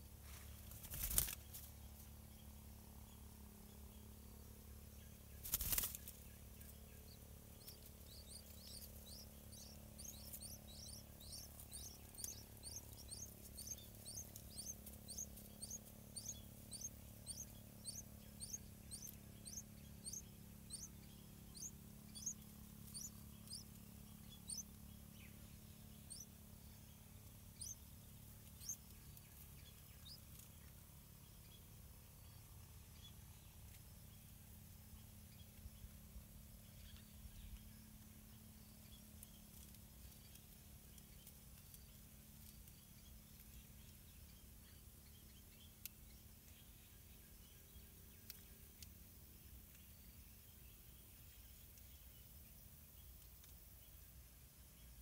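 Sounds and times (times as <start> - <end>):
bird wing flutter: 0.2 - 1.8, 5.4 - 6.3
nestlings cheeping: 5.4 - 26.7, 27.6 - 30.3.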